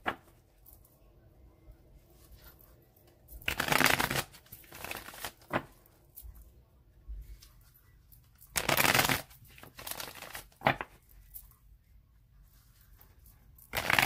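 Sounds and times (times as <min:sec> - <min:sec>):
cards being shuffled: 0:02.2 - 0:06.4, 0:08.2 - 0:11.4, 0:13.0 - 0:14.0.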